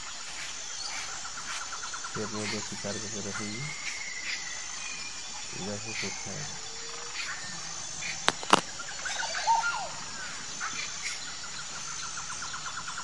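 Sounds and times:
birds chirping: 0:00.0 - 0:13.0
high insect drone: 0:00.0 - 0:13.0
sharp clicks: 0:08.2 - 0:08.7.

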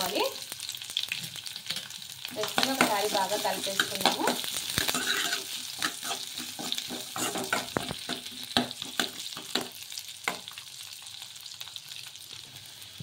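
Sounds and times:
onions sizzling in oil: 0:00.0 - 0:13.0
spatula scraping metal pan: 0:03.6 - 0:09.1.

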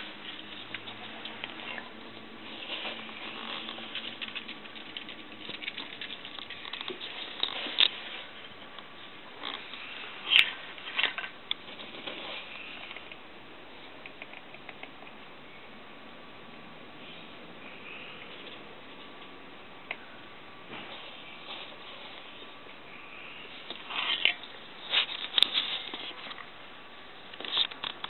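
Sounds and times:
chickens scratching and pecking gravel: 0:00.0 - 0:13.0, 0:20.7 - 0:22.6, 0:23.2 - 0:26.5.

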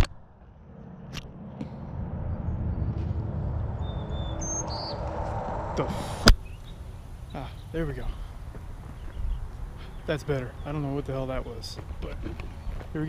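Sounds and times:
low steady rumbling: 0:00.0 - 0:12.7
faint bird chirps: 0:03.8 - 0:05.3.

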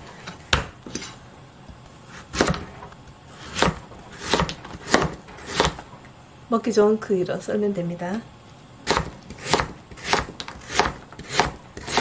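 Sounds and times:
knife slicing radish: 0:01.7 - 0:05.8, 0:08.8 - 0:12.0.

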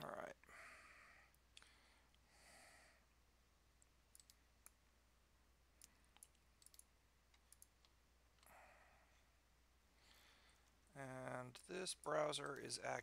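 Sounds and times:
soft breath: 0:00.4 - 0:03.2, 0:08.4 - 0:10.8
computer mouse clicks: 0:03.8 - 0:04.8, 0:05.8 - 0:08.5.

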